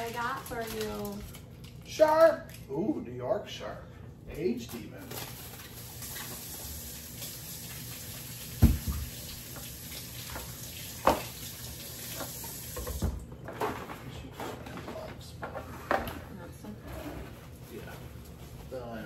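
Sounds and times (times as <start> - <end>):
kitchen tap running into sink: 5.6 - 13.2.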